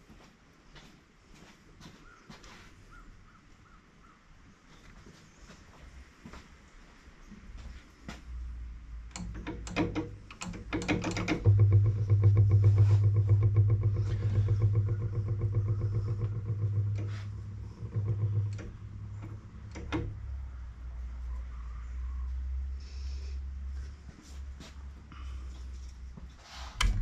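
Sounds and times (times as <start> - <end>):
generator engine starting and running: 8.8 - 27.0.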